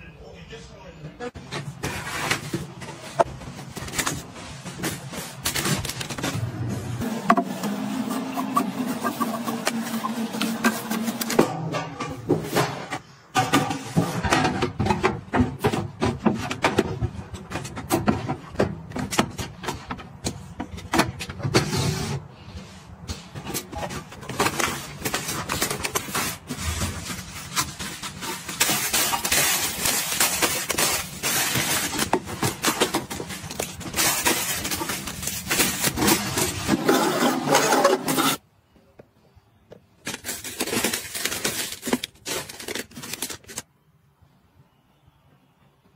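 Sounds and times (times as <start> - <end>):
plastic wrapping crinkling: 24.2 - 36.7, 40.0 - 43.7.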